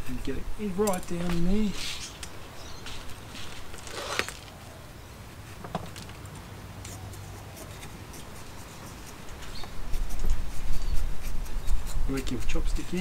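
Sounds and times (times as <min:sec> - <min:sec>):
chopstick scratching soil: 0:06.8 - 0:13.0.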